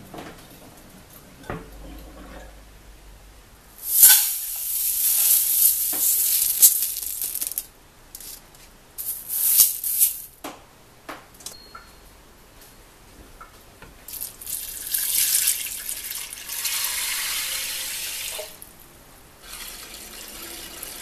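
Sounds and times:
beans pouring into a pot: 0:03.8 - 0:08.4, 0:09.0 - 0:10.4, 0:14.1 - 0:18.6.

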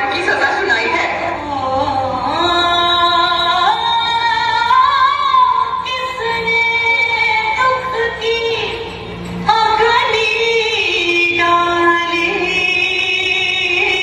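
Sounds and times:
woman singing: 0:00.0 - 0:14.0
musical accompaniment: 0:01.3 - 0:14.0.

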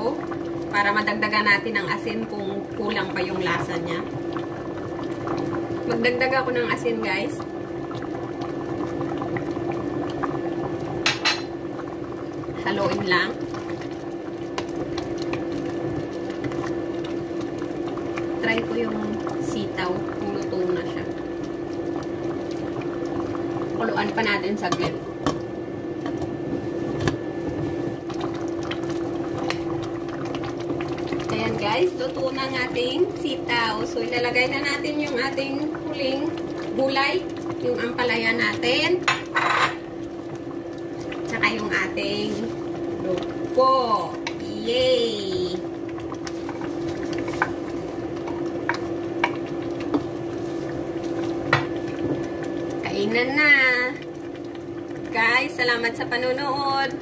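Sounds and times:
soup boiling and bubbling: 0:00.0 - 0:57.0
steady hum: 0:00.0 - 0:57.0
wooden spatula stirring in pot: 0:26.0 - 0:55.5.

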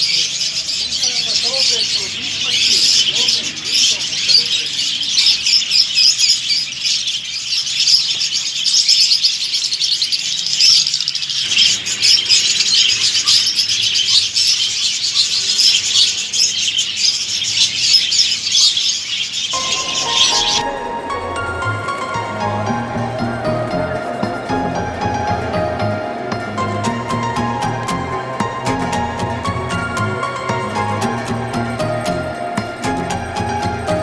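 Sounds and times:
budgerigars chirping and chattering: 0:00.0 - 0:20.7.

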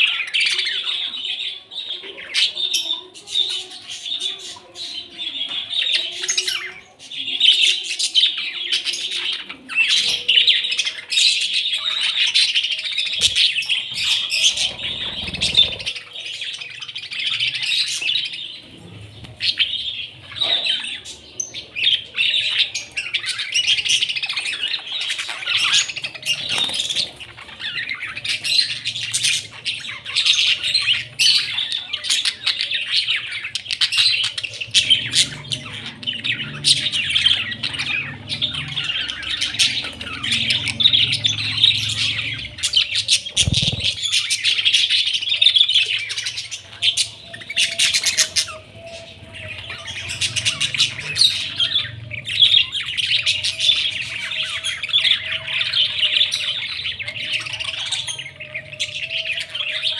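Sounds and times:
budgerigars chattering: 0:13.0 - 0:18.3, 0:19.4 - 0:59.9.

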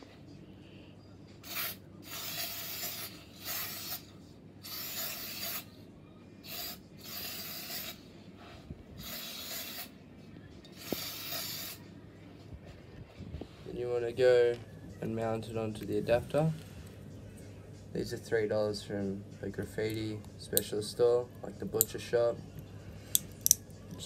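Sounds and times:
spray paint can hissing: 0:01.4 - 0:05.7, 0:06.4 - 0:08.0, 0:09.0 - 0:09.9, 0:10.8 - 0:11.8.

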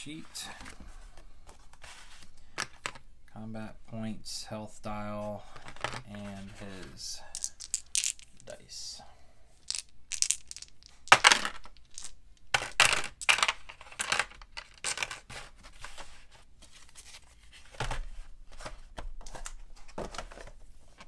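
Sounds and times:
plastic dice rattling: 0:07.3 - 0:08.6, 0:09.7 - 0:15.2
game pieces clicking into tray: 0:07.4 - 0:08.4, 0:09.7 - 0:15.2.

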